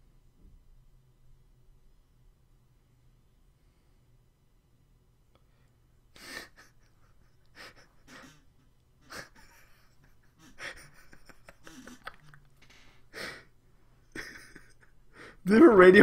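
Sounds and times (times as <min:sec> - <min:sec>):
man laughing breathily: 0:06.1 - 0:15.5.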